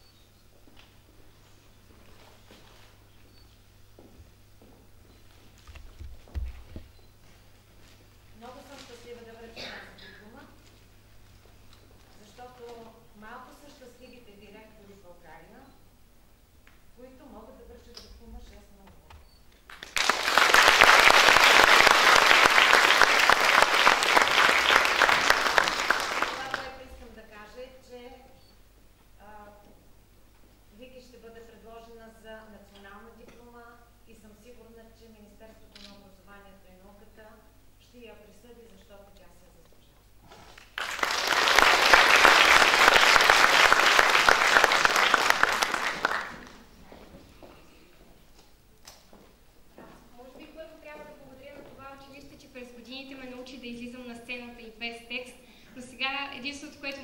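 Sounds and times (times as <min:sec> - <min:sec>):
audience applauding: 0:19.7 - 0:26.8, 0:40.5 - 0:46.7.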